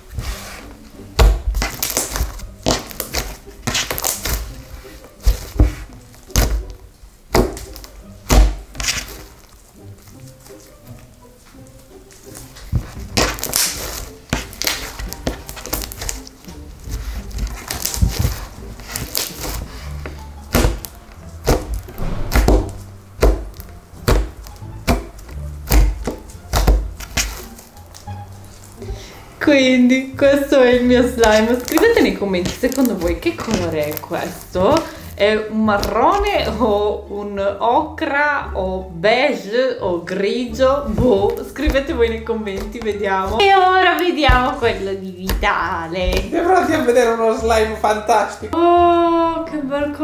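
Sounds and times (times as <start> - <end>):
slime squishing: 0.0 - 11.2, 11.8 - 29.0, 30.7 - 36.7
slime squishy thuds on table: 20.5 - 27.0.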